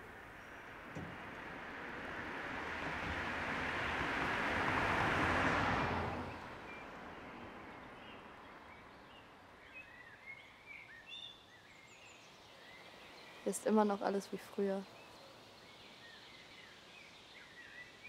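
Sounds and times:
motor vehicle driving past: 1.1 - 7.7.

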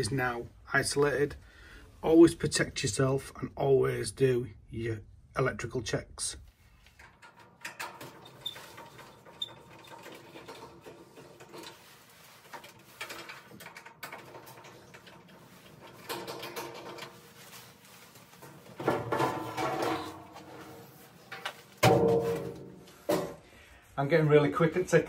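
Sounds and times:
metal casing handled: 6.8 - 23.4.

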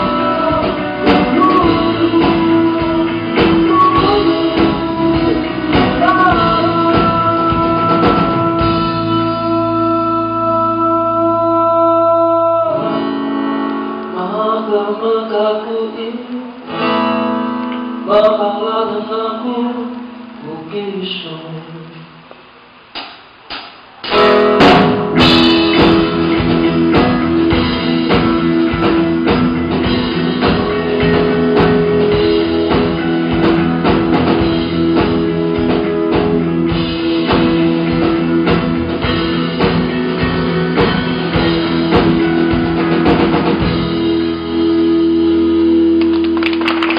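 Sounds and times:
fast drumming: 0.0 - 9.6, 23.0 - 44.3
live band playing: 0.0 - 15.0, 23.4 - 46.9
strummed acoustic guitar chords: 0.0 - 20.7, 24.1 - 46.4.

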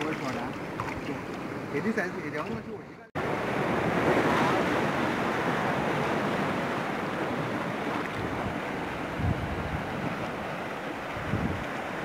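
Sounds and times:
surf breaking on rocky shore: 3.2 - 12.0.

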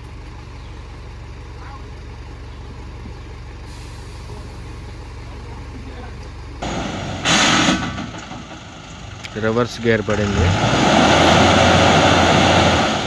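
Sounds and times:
diesel truck engine running: 0.0 - 13.0
air brakes hissing: 3.6 - 4.5, 7.0 - 8.0.

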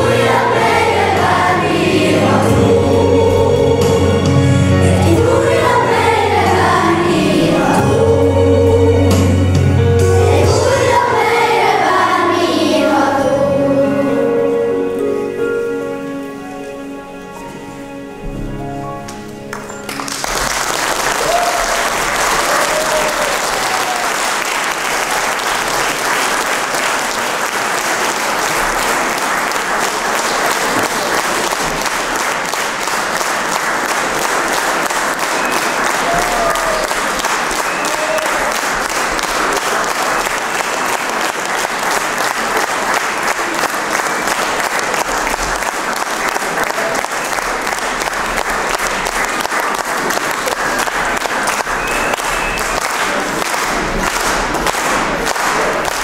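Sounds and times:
audience applauding: 0.0 - 2.4, 19.1 - 56.0.

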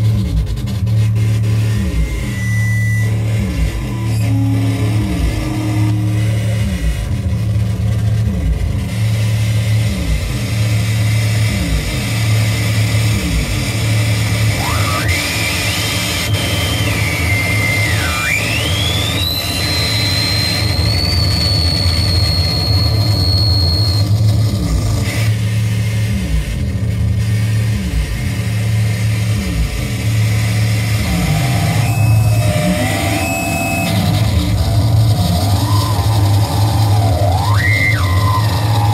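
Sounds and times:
pulsing low electronic drone: 0.0 - 38.9
high whistling tone: 1.7 - 6.6, 14.5 - 24.5, 30.8 - 38.9.

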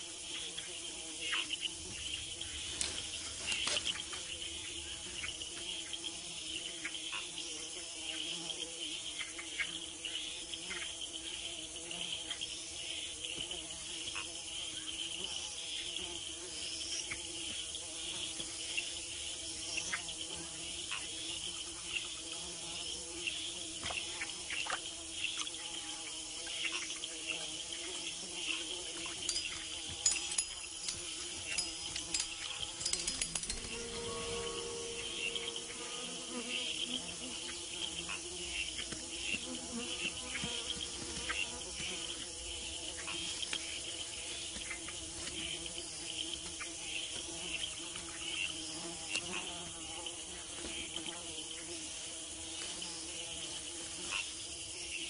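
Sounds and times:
high-pitched insect buzzing: 0.0 - 55.0
insect clicks and ticks: 28.6 - 33.8.

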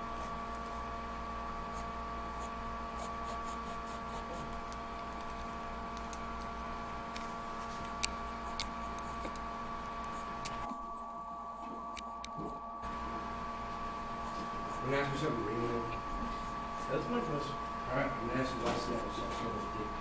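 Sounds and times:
electrical hum and hiss: 0.0 - 20.0
pencil scratching on paper: 1.7 - 4.6, 16.1 - 17.4.

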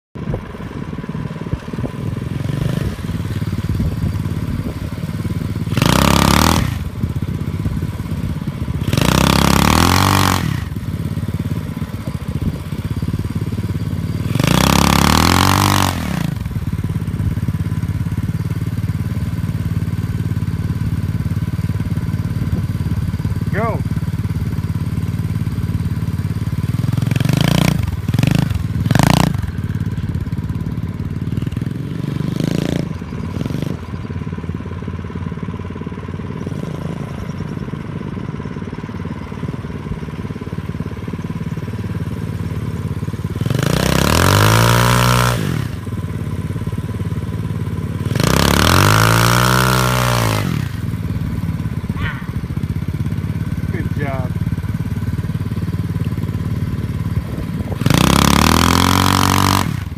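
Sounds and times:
motorcycle engine idling and revving: 0.0 - 59.9.

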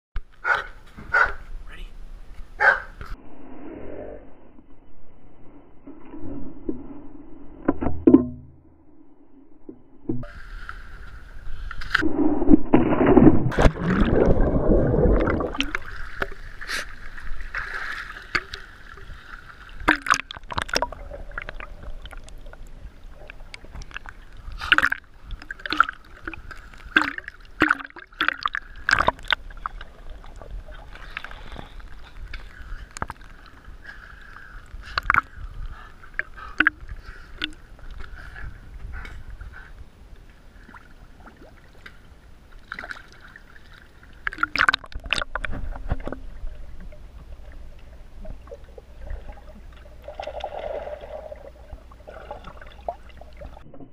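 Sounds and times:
pool water sloshing and splashing: 12.6 - 38.4, 40.3 - 53.9.

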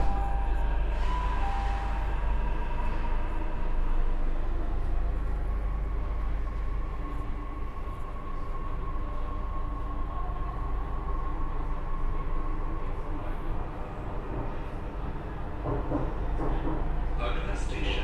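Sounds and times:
train motor whine: 0.0 - 9.6
train interior rumble: 0.0 - 18.0.

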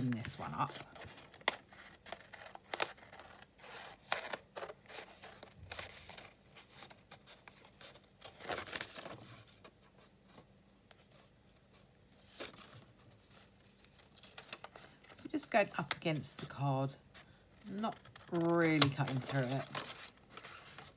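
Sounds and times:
scissors snipping paper: 0.0 - 6.4, 17.6 - 20.0
paper rustling: 0.0 - 20.9.

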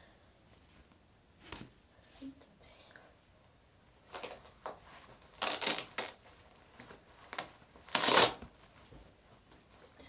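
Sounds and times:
clothing rustling against microphone: 4.0 - 10.0.

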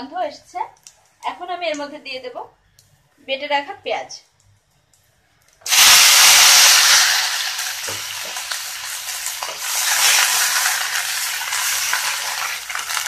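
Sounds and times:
paste sizzling in hot oil: 5.6 - 13.0.

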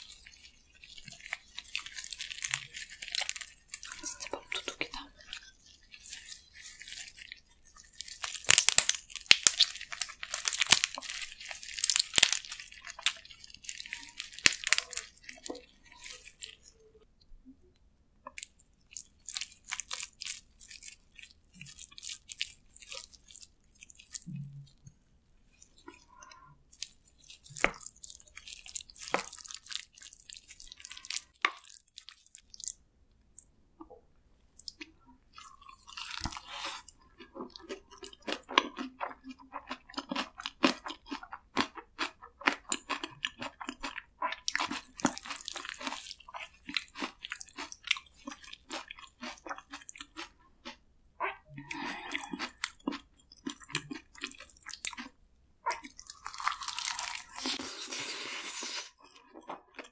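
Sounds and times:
crab shells crackling and tearing: 1.0 - 5.5, 7.8 - 16.4, 26.8 - 32.8, 55.7 - 59.9.

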